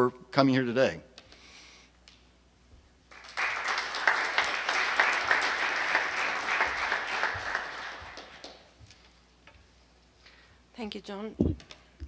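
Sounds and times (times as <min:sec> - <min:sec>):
audience applause: 0:03.1 - 0:08.8.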